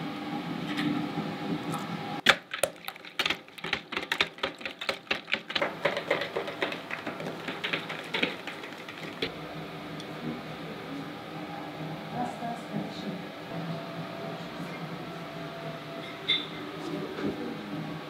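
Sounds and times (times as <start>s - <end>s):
rapid sharp knocks: 2.2s - 9.3s.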